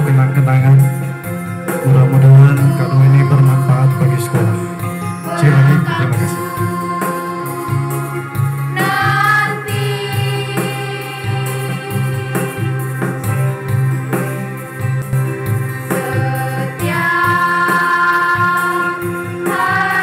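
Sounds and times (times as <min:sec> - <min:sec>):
low instrumental bass line: 0:00.0 - 0:08.6
girls choir singing: 0:01.8 - 0:13.0, 0:15.9 - 0:20.0.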